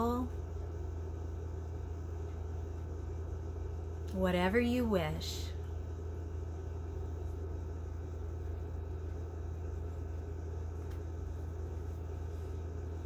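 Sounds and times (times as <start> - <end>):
low hum with faint hiss: 0.0 - 13.0.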